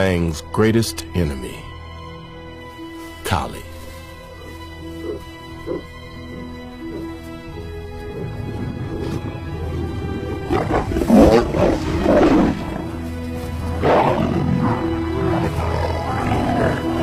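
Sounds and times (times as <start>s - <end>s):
background music with held notes: 0.0s - 17.0s
lions snarling: 5.0s - 17.0s.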